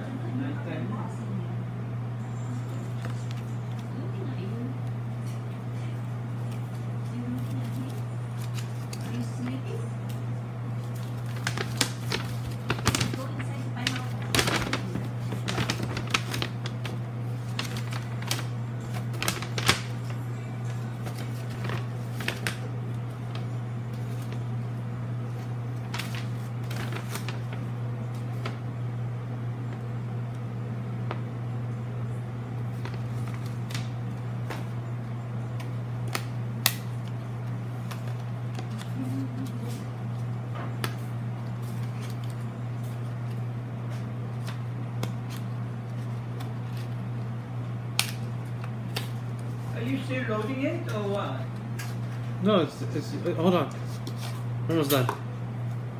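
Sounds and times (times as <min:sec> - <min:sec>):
steady low hum: 0:00.0 - 0:55.9
paper crackling and rustling: 0:02.9 - 0:04.0, 0:06.3 - 0:09.6, 0:10.7 - 0:28.7, 0:32.6 - 0:34.8, 0:35.5 - 0:47.4.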